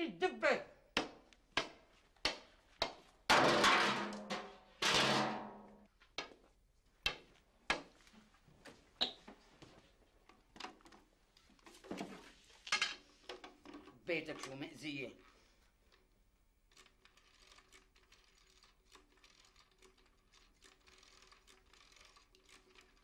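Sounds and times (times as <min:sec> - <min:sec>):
walking stick tapping on hard floor: 0:01.0 - 0:03.0, 0:06.2 - 0:08.0.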